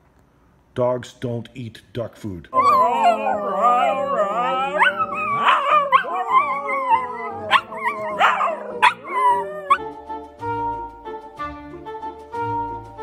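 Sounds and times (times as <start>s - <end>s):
huskies howling: 2.6s - 9.9s.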